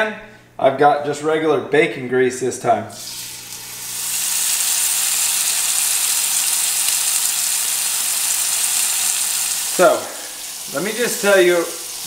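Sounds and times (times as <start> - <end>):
fish sizzling in grease: 3.0 - 12.0.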